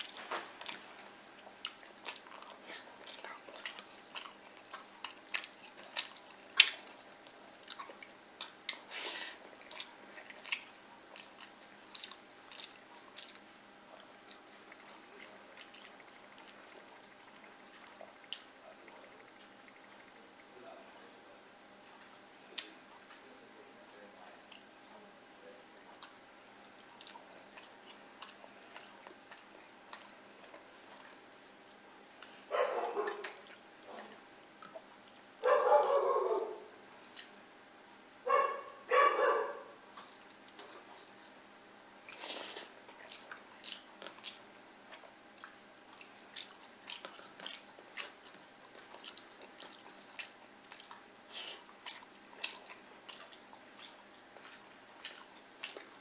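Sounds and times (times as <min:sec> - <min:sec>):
chewing: 0:00.0 - 0:37.4, 0:38.3 - 0:56.0.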